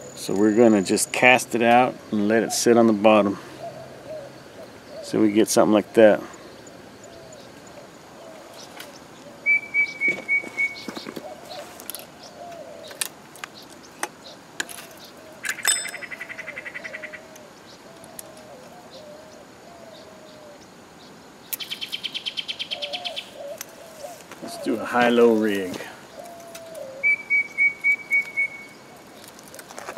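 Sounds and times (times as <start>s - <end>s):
lower repeated bird calls: 0.0s - 29.9s
bird trills: 6.3s - 20.6s, 21.5s - 29.3s.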